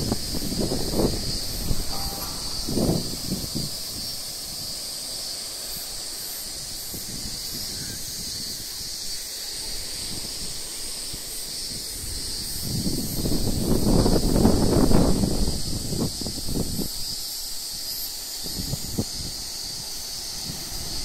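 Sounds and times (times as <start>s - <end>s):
wind buffeting microphone: 0.0s - 9.0s, 9.7s - 17.6s, 18.4s - 21.0s
steady high-pitched hiss: 0.0s - 21.0s.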